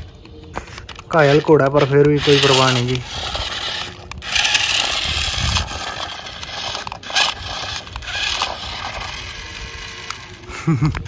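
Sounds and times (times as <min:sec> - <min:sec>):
tyres crunching on gravel: 0:00.6 - 0:11.0.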